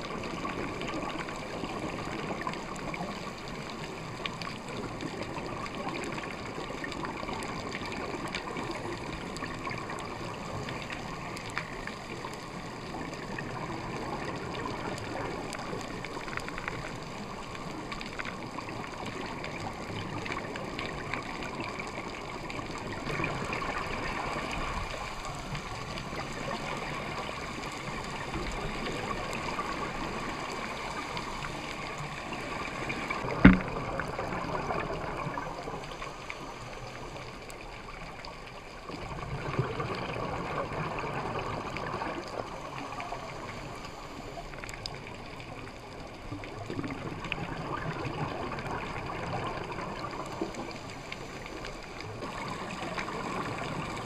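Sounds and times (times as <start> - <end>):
regulator bubbles gurgling underwater: 0.0 - 54.0
sharp knock: 33.4 - 33.7.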